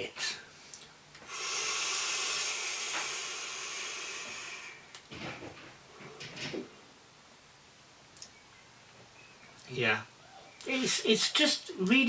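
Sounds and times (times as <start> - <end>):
breathy exhale puffs: 1.2 - 4.9
e-cigarette draw hiss: 1.2 - 4.9.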